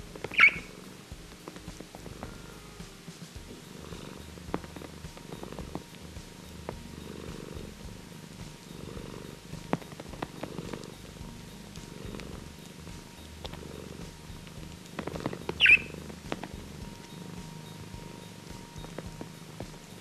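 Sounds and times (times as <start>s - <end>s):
cat purring: 0.0s - 20.0s
budgerigar chirp: 0.2s - 0.8s, 15.5s - 16.1s.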